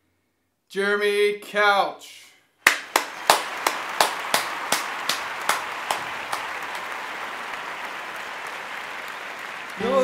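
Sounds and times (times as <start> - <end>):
crowd applause: 2.7 - 10.0.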